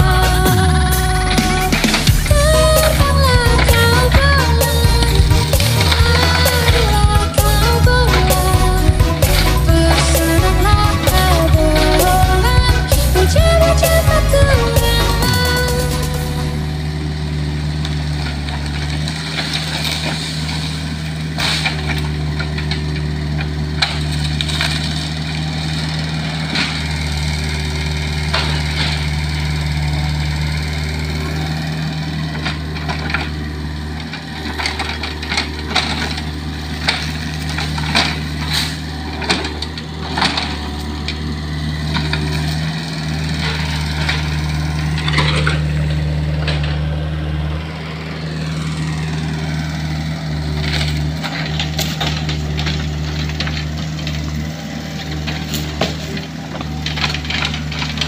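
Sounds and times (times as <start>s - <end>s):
excavator diesel engine running: 0.0s - 58.0s.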